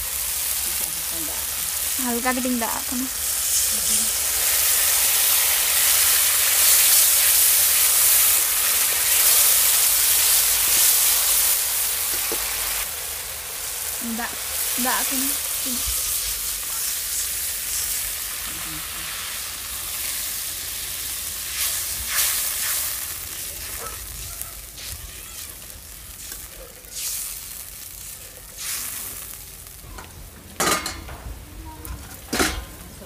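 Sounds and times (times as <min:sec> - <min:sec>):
hot oil sizzling: 0:00.0 - 0:33.0.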